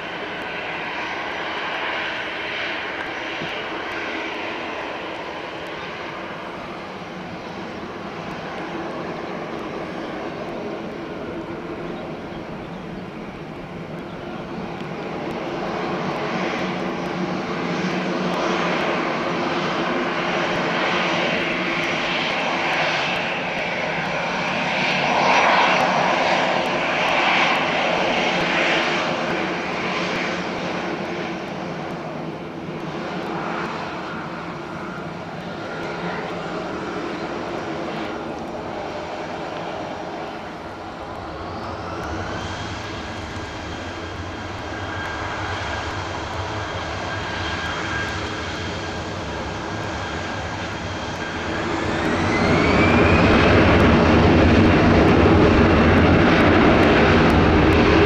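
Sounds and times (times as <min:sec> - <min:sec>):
jet engines running: 0:00.0 - 0:58.0
engine whine rising: 0:40.8 - 0:58.0.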